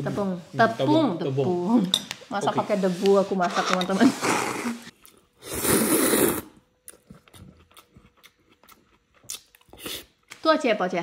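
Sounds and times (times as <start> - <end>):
person slurping noodles: 3.5 - 6.6
faint chewing: 6.8 - 10.3.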